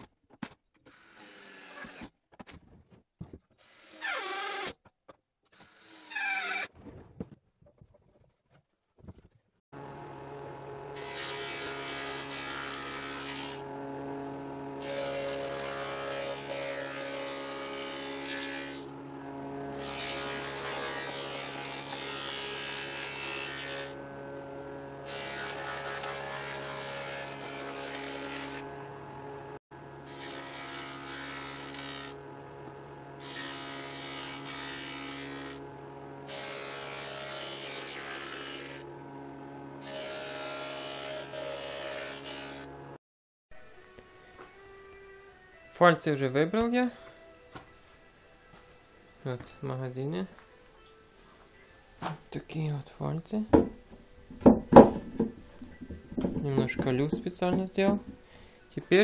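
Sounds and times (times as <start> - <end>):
woodworking machine cutting wood: 9.8 - 43.0, 53.5 - 59.0.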